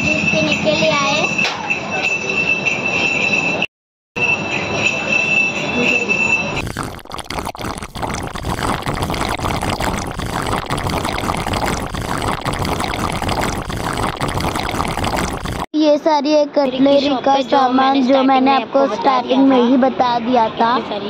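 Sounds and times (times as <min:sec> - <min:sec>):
noisy din with small clatters: 0:00.0 - 0:06.6.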